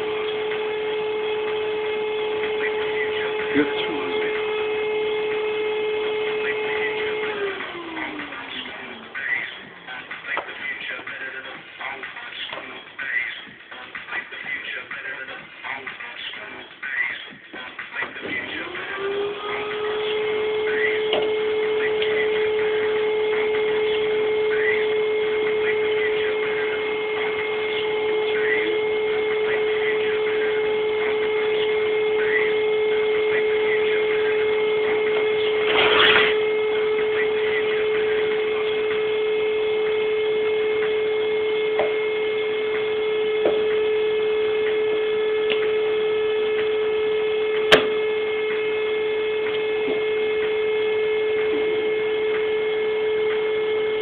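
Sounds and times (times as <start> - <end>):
electrical hum: 0.0 - 54.0
faint steady high tones: 19.8 - 54.0.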